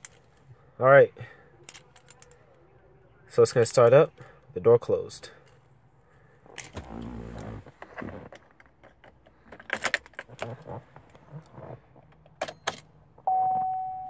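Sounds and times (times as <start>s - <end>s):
dashboard warning chime: 13.2s - 14.0s.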